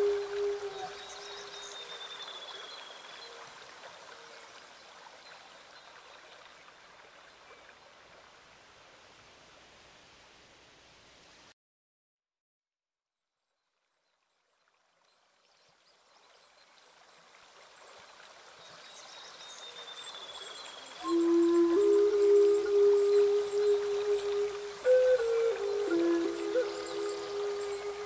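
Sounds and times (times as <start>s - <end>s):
flute playing long low notes: 0.0s - 2.7s, 21.0s - 28.0s
flowing stream: 0.0s - 11.4s, 14.2s - 28.0s.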